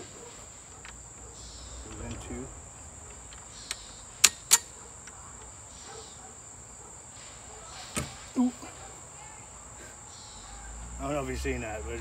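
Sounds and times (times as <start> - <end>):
insect chirring: 0.0 - 12.0
metal parts clicking together: 3.3 - 5.2.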